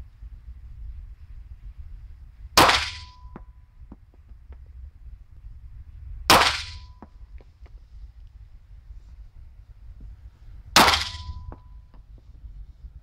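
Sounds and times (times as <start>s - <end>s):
thin ringing tone: 11.1s - 12.0s.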